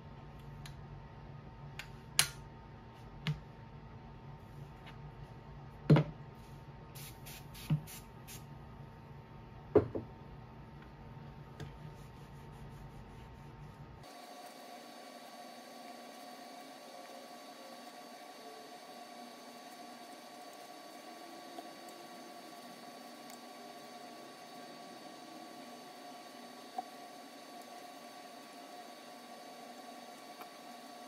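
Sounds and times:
aerosol can spraying: 0:07.0 - 0:08.4
knocks on wooden workbench: 0:09.8 - 0:10.1.

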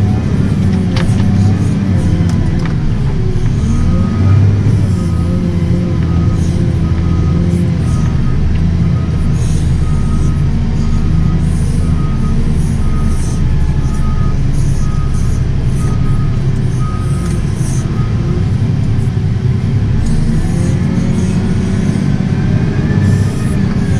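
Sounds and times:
reversing alarm beeping: 0:00.0 - 0:18.5
diesel engine running: 0:00.0 - 0:23.9.

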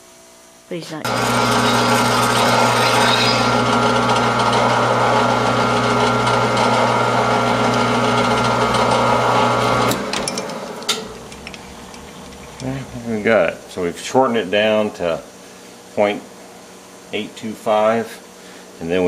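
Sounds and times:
metal lathe motor hum: 0:01.1 - 0:15.2.

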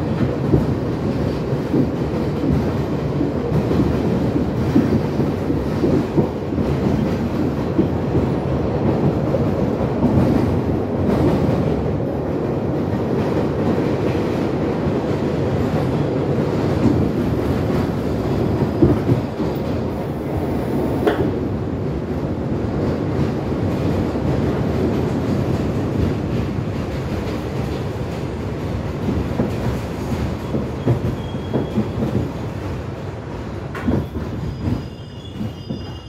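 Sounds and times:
train wheels rumbling on rail: 0:00.0 - 0:36.0
train brakes squealing: 0:30.4 - 0:32.3, 0:33.8 - 0:36.0.

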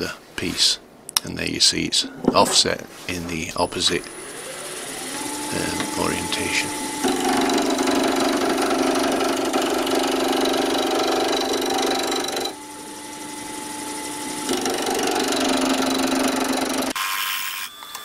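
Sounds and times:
lathe motor hum: 0:03.7 - 0:17.0
lathe tool rattling cut: 0:03.9 - 0:17.0.

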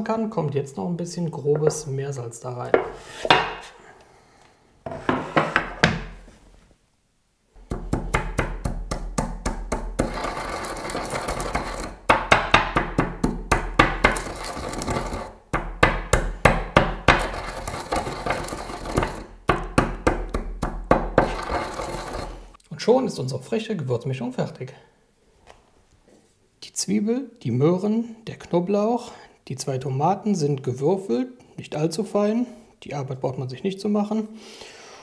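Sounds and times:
pestle crushing spices in mortar: 0:07.6 - 0:22.6.

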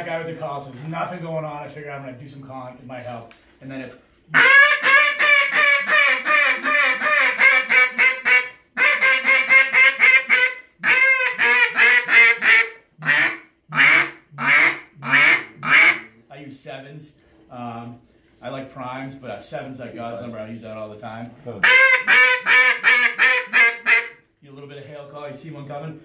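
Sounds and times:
duck call quacks: 0:04.3 - 0:16.1, 0:21.6 - 0:24.2.

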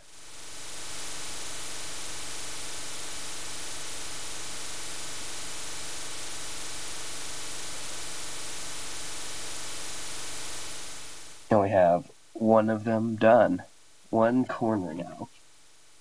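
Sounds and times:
static hiss: 0:00.0 - 0:16.0
faint low hum: 0:11.4 - 0:16.0.

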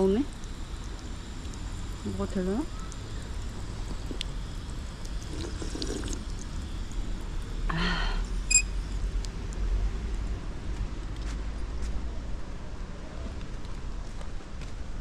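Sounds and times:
water trickling and splashing: 0:00.0 - 0:07.7
high chirp: 0:08.5 - 0:08.7.

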